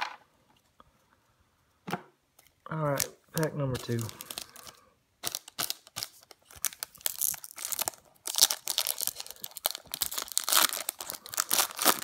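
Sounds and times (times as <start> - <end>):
wrapper tearing and crinkling: 3.0 - 12.0.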